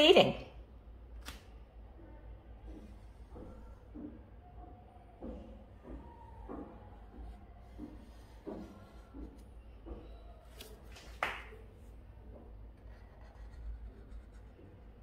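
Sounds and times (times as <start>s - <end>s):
marker drawing on paper: 7.0s - 10.8s, 12.7s - 15.0s.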